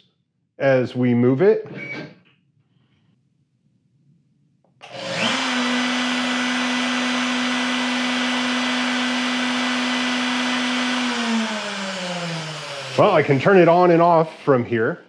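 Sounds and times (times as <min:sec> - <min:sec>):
router motor whining: 0:04.8 - 0:13.7.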